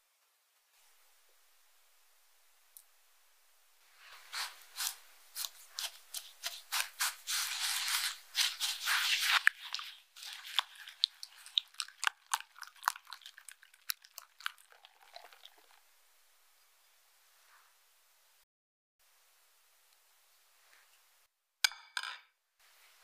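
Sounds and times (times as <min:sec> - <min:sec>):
whisk swishing wet mixture: 0:03.9 - 0:15.8.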